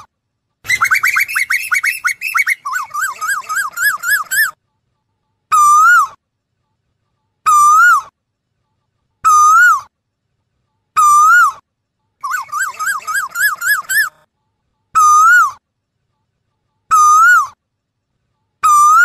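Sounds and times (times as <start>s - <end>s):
bird whistled calls: 0.7s - 4.6s, 12.2s - 14.1s.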